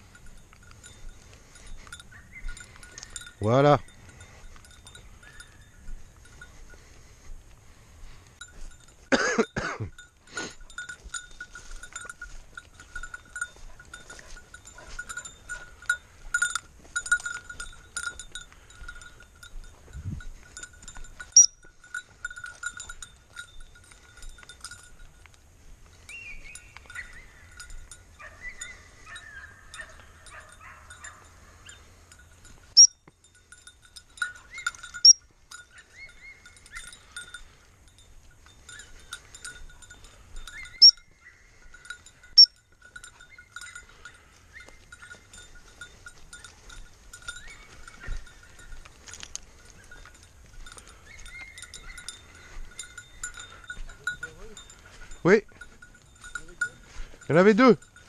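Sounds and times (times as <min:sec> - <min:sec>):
collar bell jingling: 0:00.0 - 0:58.0
birds twittering: 0:00.8 - 0:06.9, 0:26.0 - 0:32.0, 0:34.1 - 0:37.7, 0:38.6 - 0:55.2
sharp high chirps: 0:20.6 - 0:24.9, 0:26.0 - 0:29.5, 0:31.0 - 0:48.8, 0:49.5 - 0:58.0.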